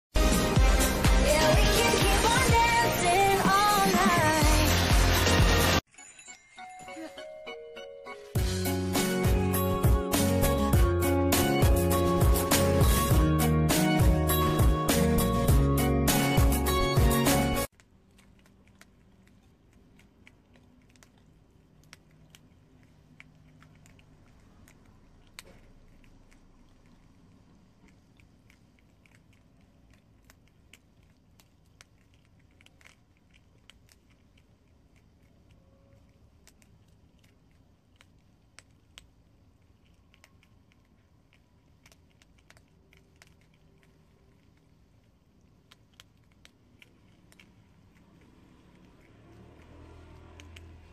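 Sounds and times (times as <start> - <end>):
background music: 0.2 - 5.8, 6.6 - 17.7
prairie dogs crunching dry noodles: 17.1 - 50.9.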